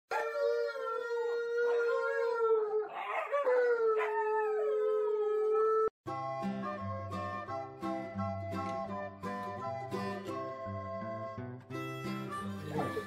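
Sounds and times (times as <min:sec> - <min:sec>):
dog howling: 0:00.1 - 0:05.9.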